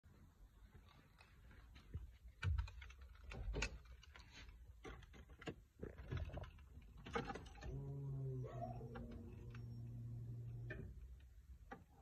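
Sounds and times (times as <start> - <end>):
handling clicks and knocks: 0.8 - 7.7
low steady hum: 7.0 - 12.0.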